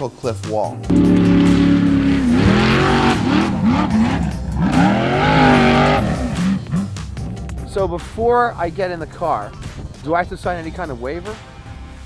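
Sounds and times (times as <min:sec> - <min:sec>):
off-road car engine revving: 0:00.9 - 0:08.1.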